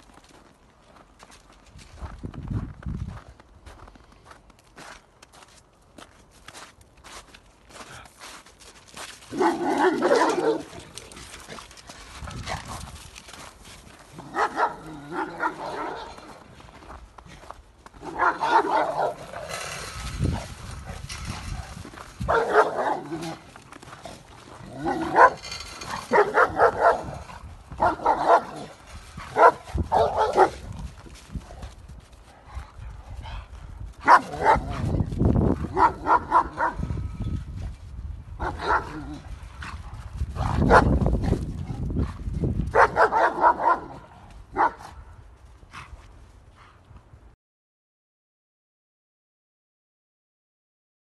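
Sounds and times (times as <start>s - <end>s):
dogs barking: 9.3s - 10.8s, 14.2s - 16.4s, 18.0s - 19.7s, 22.2s - 23.4s, 24.8s - 30.7s, 34.0s - 34.9s, 35.6s - 36.9s, 38.4s - 39.2s, 40.4s - 41.0s, 42.7s - 45.0s.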